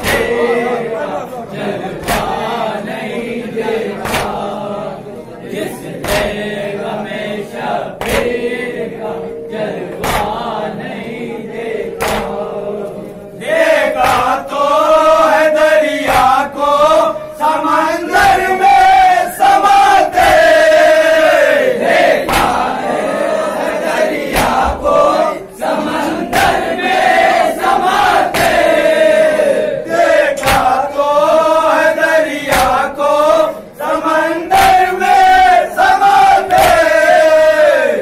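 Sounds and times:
sharp hand slaps: 0.0 - 0.5, 1.9 - 2.6, 3.9 - 4.6, 6.0 - 6.6, 8.0 - 8.5, 9.9 - 10.6, 11.9 - 12.6, 13.8 - 16.6, 19.4 - 20.6, 22.2 - 22.8, 24.3 - 24.8, 26.2 - 28.8, 30.3 - 31.0, 32.4 - 33.0, 34.5 - 35.4, 36.4 - 37.0
men chanting in chorus: 0.0 - 38.0.

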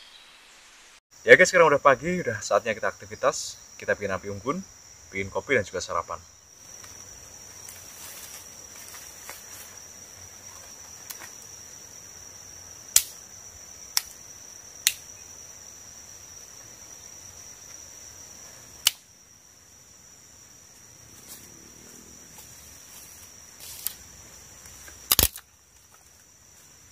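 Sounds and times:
insects droning: 0.0 - 26.9
dry twigs snapping: 12.9 - 13.2, 14.8 - 15.1, 18.8 - 19.1, 24.7 - 26.0.

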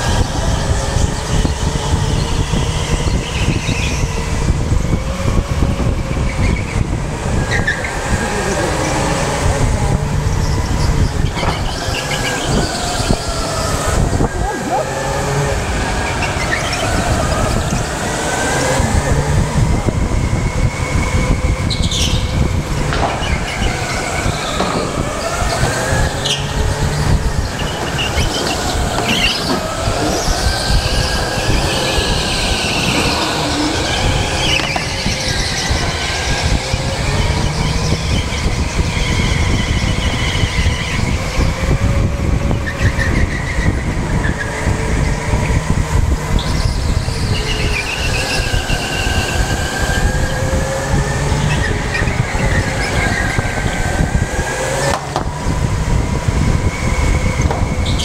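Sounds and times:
electric motor whine: 0.0 - 58.0
tyres squealing: 6.1 - 41.8.

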